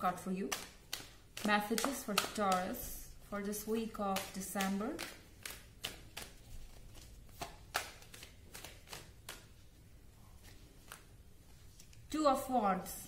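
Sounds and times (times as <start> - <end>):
cards being shuffled: 0.2 - 12.1.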